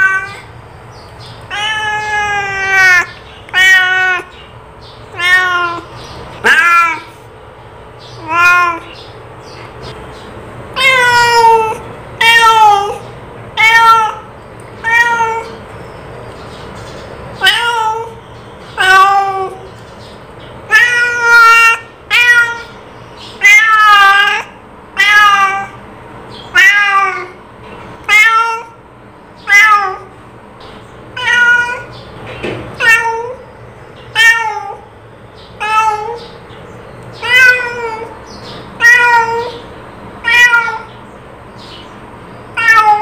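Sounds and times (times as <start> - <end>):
cat meowing: 0.0 - 0.5, 1.5 - 4.4, 5.1 - 7.3, 8.1 - 9.0, 10.7 - 15.6, 17.4 - 19.7, 20.7 - 25.8, 26.5 - 27.4, 28.0 - 28.8, 29.4 - 30.1, 31.1 - 32.0, 32.7 - 33.5, 34.1 - 34.9, 35.6 - 36.4, 37.2 - 41.0, 42.5 - 43.0.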